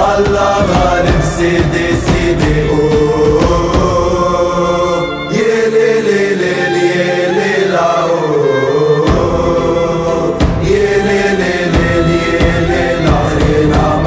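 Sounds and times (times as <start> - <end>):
low backing beat: 0.0 - 5.0, 9.1 - 14.0
chorus of voices singing: 0.0 - 14.0.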